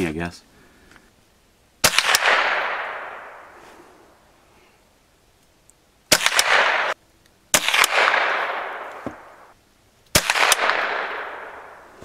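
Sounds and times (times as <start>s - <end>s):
rifle shots with ringing tail: 1.8s - 3.6s, 6.1s - 9.6s, 10.2s - 12.0s.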